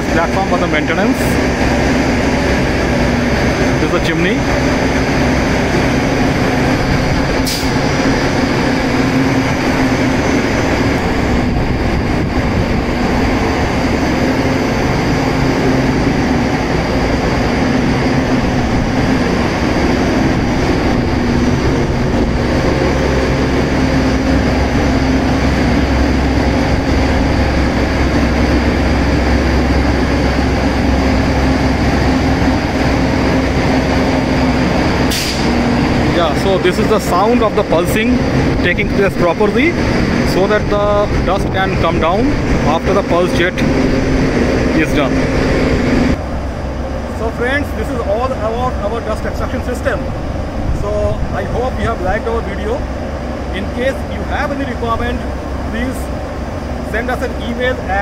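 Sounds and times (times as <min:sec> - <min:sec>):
dust collector fan humming: 0:00.0 - 0:58.0
compressed air burst: 0:07.1 - 0:08.7, 0:34.9 - 0:36.1.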